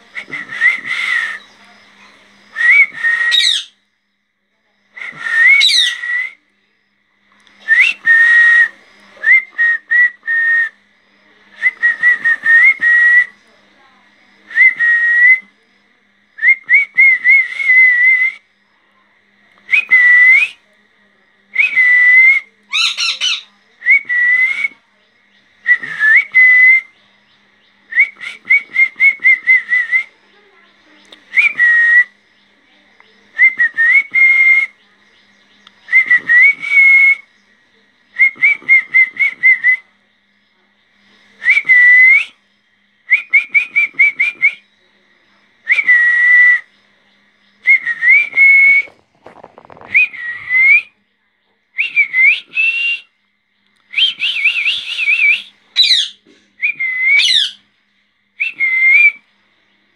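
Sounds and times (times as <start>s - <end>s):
parakeets chattering: 3.3s - 3.7s, 5.6s - 6.0s, 22.7s - 23.5s, 55.8s - 56.3s, 57.2s - 57.6s
high-pitched parakeet call: 3.3s - 3.8s, 5.6s - 6.0s, 22.7s - 23.5s, 55.8s - 56.2s, 57.2s - 57.6s.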